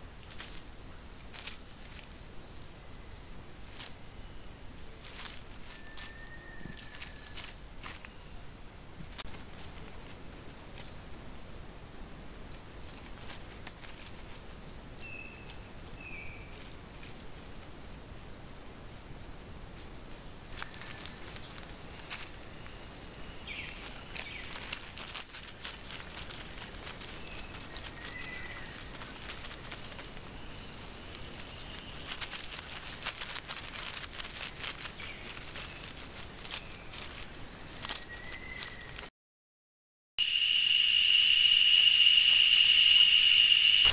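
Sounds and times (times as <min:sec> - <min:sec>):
insect chirps: 0:00.0 - 0:39.1, 0:40.2 - 0:43.9
insects droning: 0:00.0 - 0:39.1, 0:40.2 - 0:43.9
animal running through dry leaves: 0:04.8 - 0:08.2, 0:12.6 - 0:15.5, 0:20.5 - 0:39.1.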